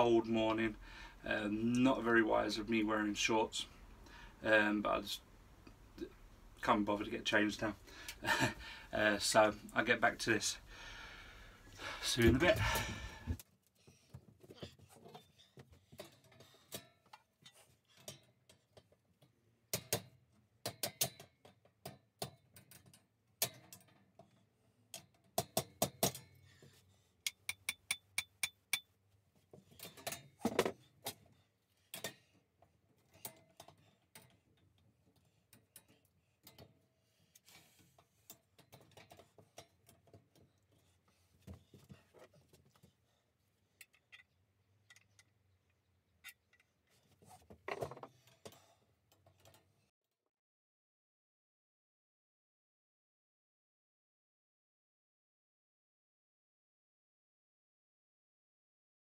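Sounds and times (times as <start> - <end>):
steel parts clicking and clanking: 31.9 - 42.4, 43.8 - 49.7.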